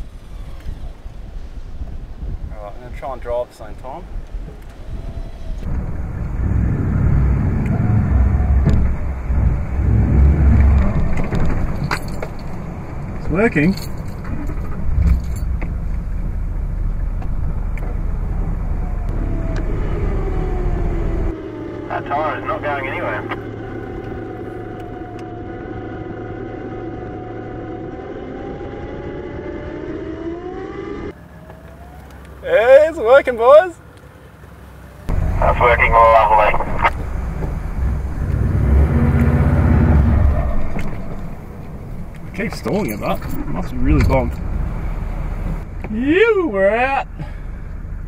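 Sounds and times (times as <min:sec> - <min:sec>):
electric winch whining under load: 0:00.0 - 0:01.4, 0:04.5 - 0:11.4, 0:22.9 - 0:32.1
low rumble: 0:04.0 - 0:31.2, 0:35.1 - 0:45.9
four-wheel drive engine under load: 0:04.3 - 0:29.6, 0:31.2 - 0:48.0.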